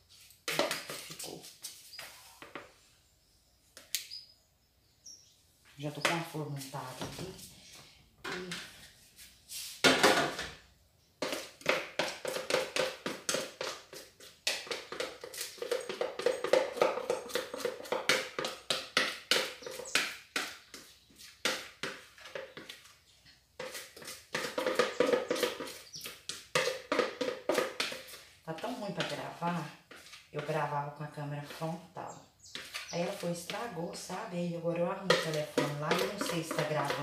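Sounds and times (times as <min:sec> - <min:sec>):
spatula scraping batter from bowl: 0:23.6 - 0:30.5, 0:32.5 - 0:34.1, 0:35.1 - 0:37.0.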